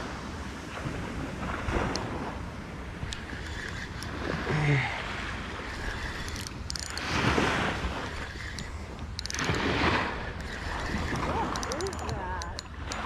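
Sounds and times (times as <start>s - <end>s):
wind on microphone: 0.0s - 13.0s
fishing reel clicking: 1.8s - 2.1s, 3.0s - 4.2s, 5.6s - 13.0s.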